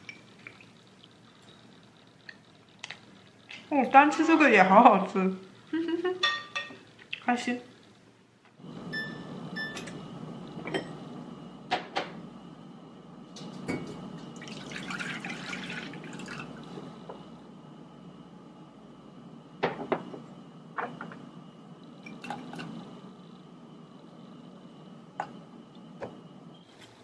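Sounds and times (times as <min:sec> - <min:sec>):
dishes clinking: 0:06.2 - 0:06.8
water running from tap: 0:14.3 - 0:16.6.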